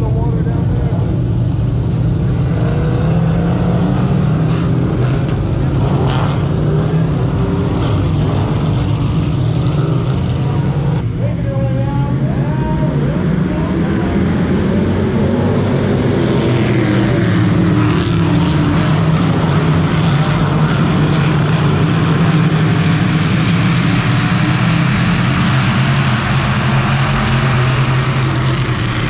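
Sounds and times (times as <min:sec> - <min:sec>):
race car engines droning: 0:00.0 - 0:29.0.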